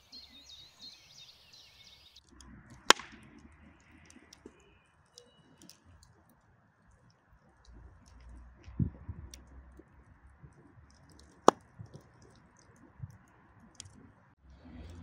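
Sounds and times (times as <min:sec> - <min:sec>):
wood fire crackling: 0:02.2 - 0:15.0
sharp loud crack: 0:02.9 - 0:03.2.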